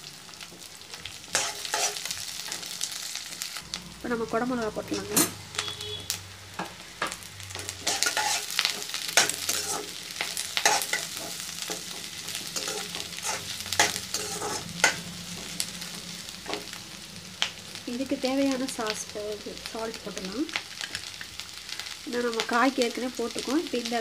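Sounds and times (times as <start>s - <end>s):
vegetables sizzling in hot oil: 0.0s - 24.0s
steel spatula scraping a pan: 1.3s - 2.6s, 7.6s - 15.6s.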